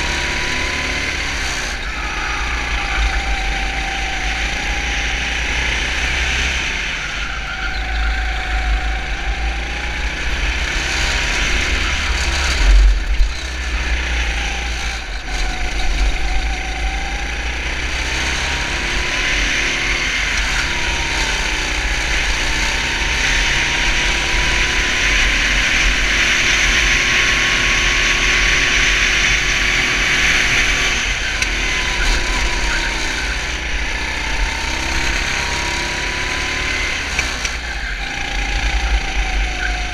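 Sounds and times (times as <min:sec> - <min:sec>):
racing kart engine: 0:00.0 - 0:39.9.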